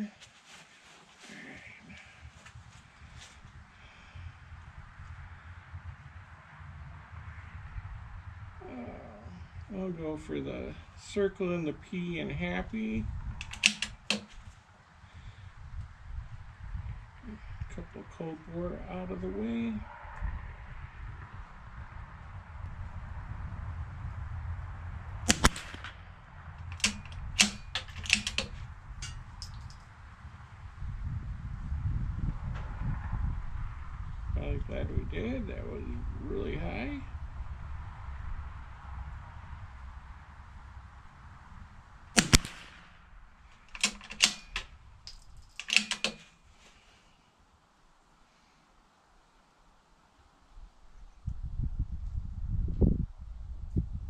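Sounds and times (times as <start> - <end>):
rifle bolt clicks: 13.4 - 14.4, 25.3 - 26.0, 26.6 - 29.8, 42.2 - 43.0, 43.6 - 46.3
rifle shot: 13.4 - 14.4, 25.2 - 29.5, 42.1 - 43.2, 43.8 - 44.8.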